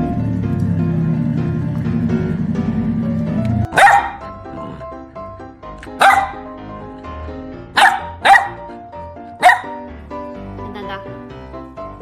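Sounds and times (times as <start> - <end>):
background music: 0.0 - 12.0
puppy barking: 3.7 - 4.8, 5.9 - 6.5, 7.8 - 8.8, 9.4 - 9.8.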